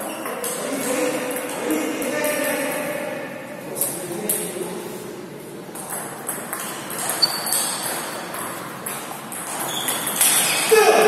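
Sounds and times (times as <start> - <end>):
ball clicking off paddles: 5.8 - 10.7.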